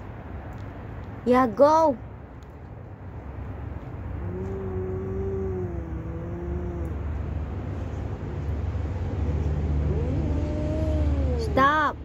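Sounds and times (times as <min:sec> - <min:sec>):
cat yowling: 0:09.8 - 0:11.7.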